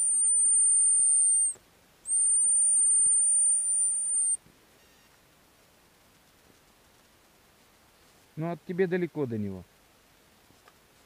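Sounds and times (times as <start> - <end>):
high-pitched dog whistle blasts: 0.0 - 4.4.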